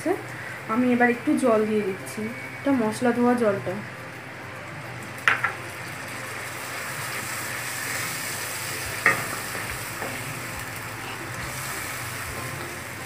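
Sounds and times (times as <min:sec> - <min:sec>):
spice paste sizzling in a pan: 0:05.2 - 0:13.0.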